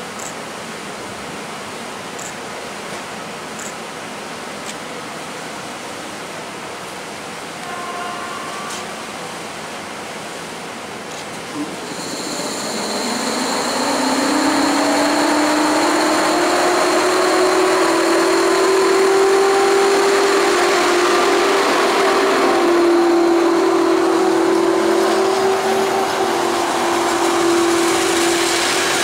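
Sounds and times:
electric locomotive motor whine: 7.5 - 10.6, 11.4 - 29.0
wheels rumbling on rails: 11.2 - 29.0.

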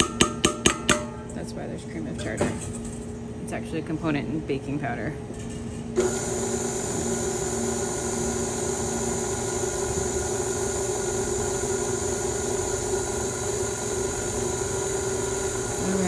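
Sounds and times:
stand mixer running: 6.0 - 16.0.

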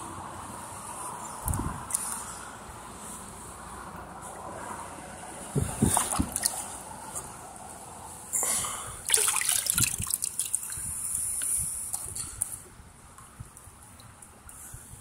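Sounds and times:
boot splashing through water: 5.9 - 6.6, 9.1 - 10.8.

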